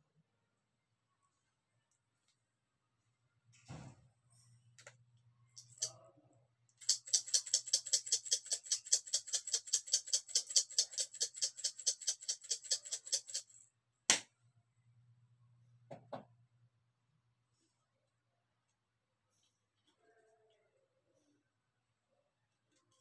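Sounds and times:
seasoning shaker rattling: 6.8s - 13.6s.

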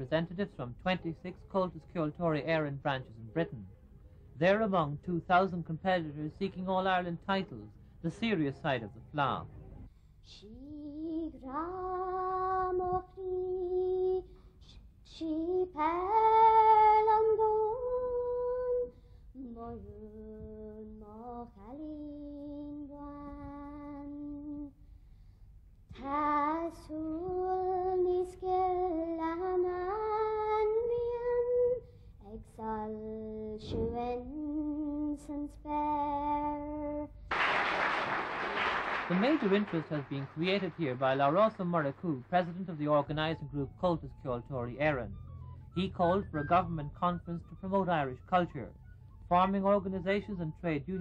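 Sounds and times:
girl singing unaccompanied: 10.2s - 24.8s, 25.9s - 37.3s.

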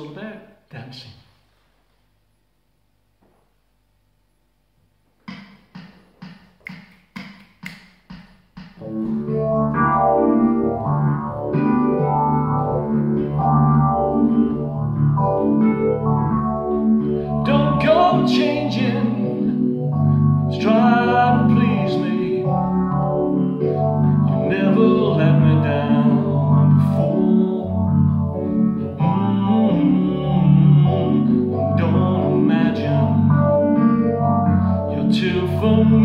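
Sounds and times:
electric keyboard chords: 8.7s - 36.0s
man singing: 17.3s - 19.6s, 20.5s - 22.8s, 24.3s - 33.9s, 34.9s - 36.0s.

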